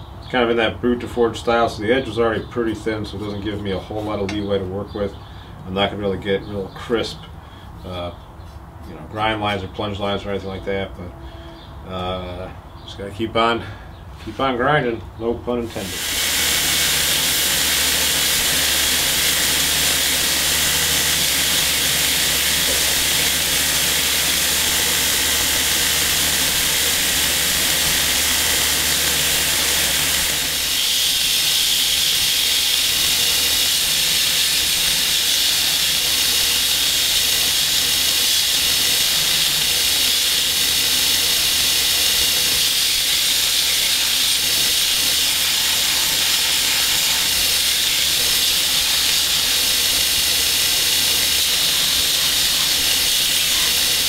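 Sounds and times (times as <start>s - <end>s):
belt grinder grinding steel: 15.7s - 54.0s.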